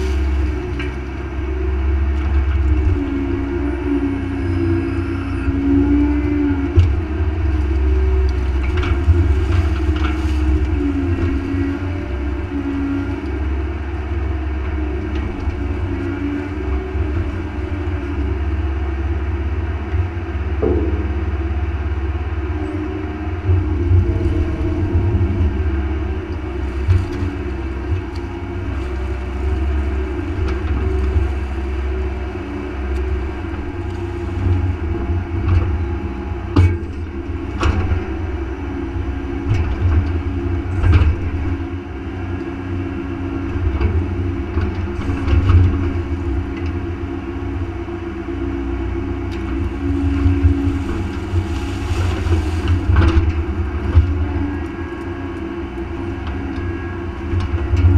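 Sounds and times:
excavator diesel engine rumble: 0:00.0 - 0:57.9
bucket and linkage clanks: 0:20.5 - 0:21.7.

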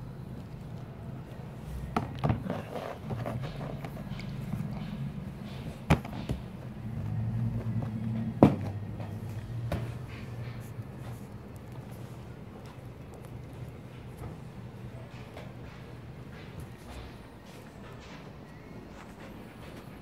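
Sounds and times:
low steady hum: 0:00.0 - 0:20.0
knocks on cardboard and plastic: 0:05.8 - 0:06.6, 0:08.2 - 0:08.8.

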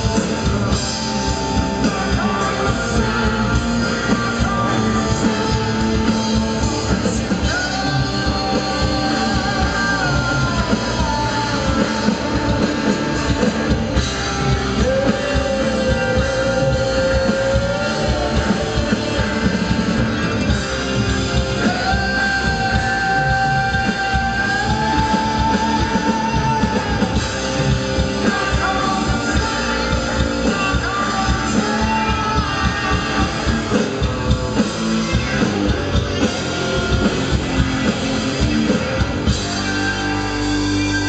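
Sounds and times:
live rock band playing: 0:00.0 - 0:41.0.

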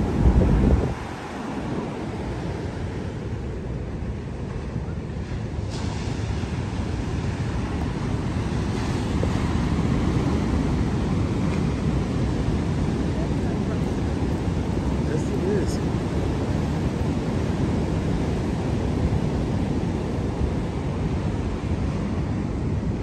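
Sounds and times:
wind rumbling on microphone: 0:00.0 - 0:23.0
surf breaking on beach: 0:04.6 - 0:22.9.

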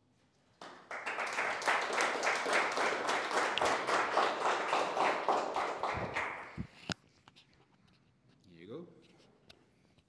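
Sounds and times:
audience applauding: 0:00.6 - 0:06.7.

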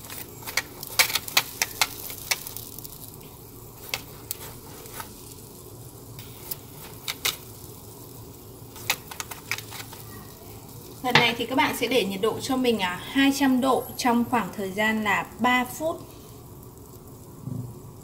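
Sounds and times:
pork skin popping and crackling: 0:00.0 - 0:12.1.

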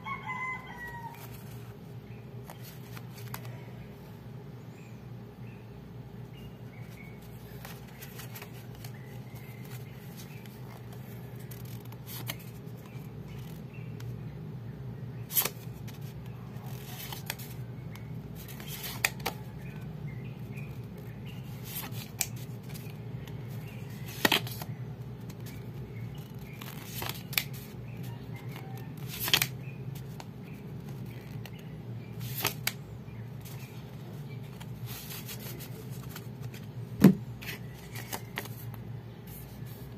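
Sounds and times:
steady low hum: 0:00.0 - 0:39.9
playing cards snapping: 0:29.1 - 0:29.5.

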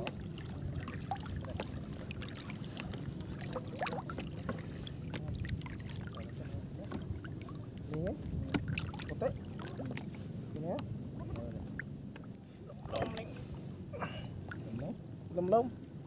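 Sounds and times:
small splashes: 0:00.0 - 0:10.3
water sloshing around wading person: 0:00.0 - 0:16.0.

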